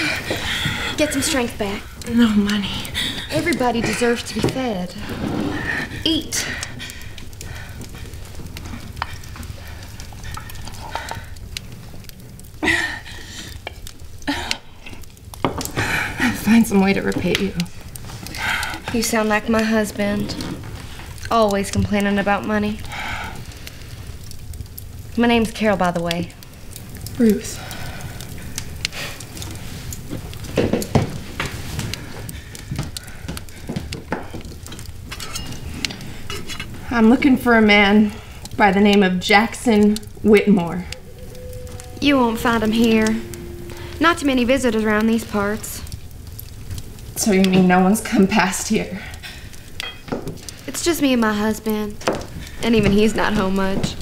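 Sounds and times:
utensils and dishes clinking: 34.7s - 36.8s, 49.8s - 50.4s
low rumble: 39.7s - 47.2s.

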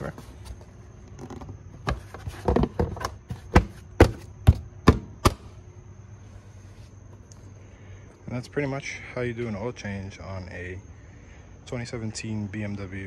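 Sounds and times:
plastic engine cover knocking: 1.8s - 5.1s.

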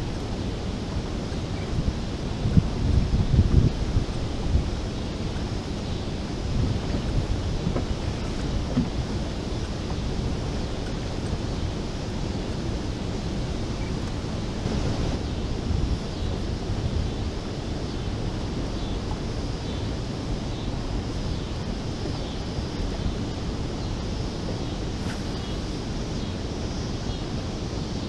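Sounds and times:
turbulent water churning: 0.0s - 28.0s
wind buffeting microphone: 0.0s - 28.0s.

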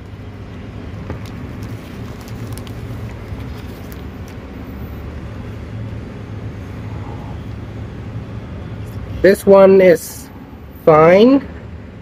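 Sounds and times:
road traffic rumble: 0.0s - 12.0s
plastic bag crackling: 1.0s - 4.4s.

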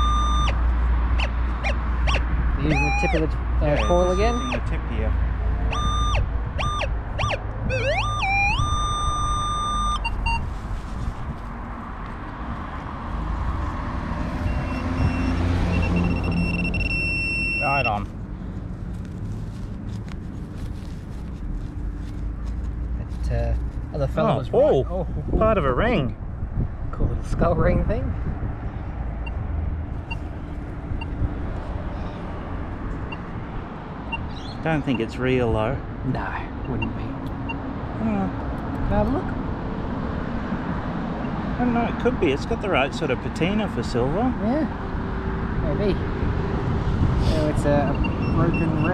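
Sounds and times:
metal detector tones: 0.0s - 0.6s, 1.6s - 4.7s, 5.7s - 10.4s, 14.5s - 18.0s
short high beeps: 0.0s - 0.6s, 2.6s - 4.7s, 5.7s - 10.4s, 14.4s - 18.0s
vehicle engine and road rumble: 0.0s - 48.9s.

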